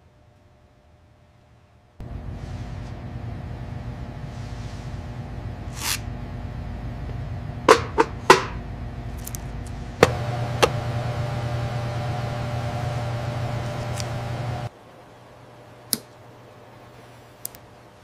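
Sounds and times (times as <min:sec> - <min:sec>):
low hum: 0:02.0 - 0:14.7.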